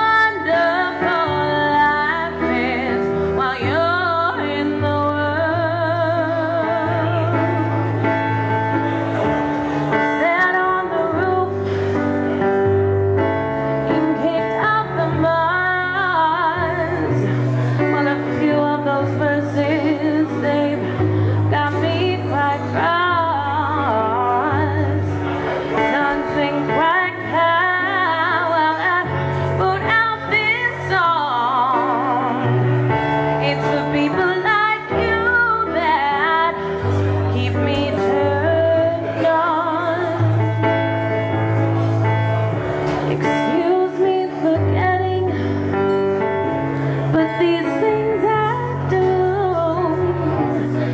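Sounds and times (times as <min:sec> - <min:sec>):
woman singing with vibrato: 0:00.0 - 0:08.3, 0:09.9 - 0:12.0, 0:13.8 - 0:40.6, 0:43.0 - 0:45.8, 0:47.1 - 0:50.9
electronic keyboard chords: 0:00.0 - 0:50.9.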